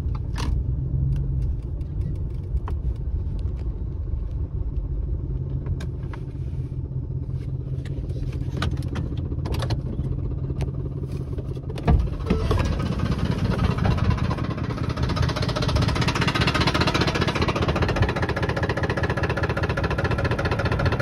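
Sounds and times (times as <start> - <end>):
truck engine idling: 6.4 - 21.0.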